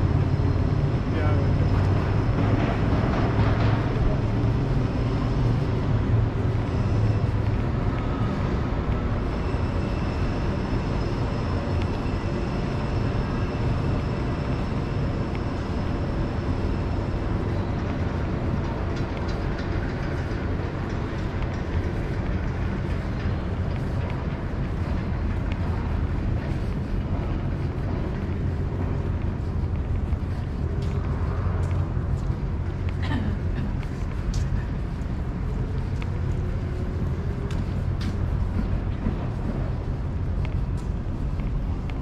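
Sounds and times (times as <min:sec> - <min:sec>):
faint high whining tones: 0:00.0 - 0:33.0
distant vehicles: 0:00.0 - 0:42.0.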